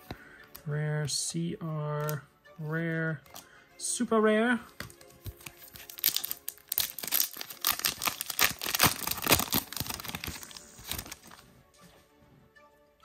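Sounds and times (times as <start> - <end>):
foil pack crinkling and tearing: 5.2 - 11.4.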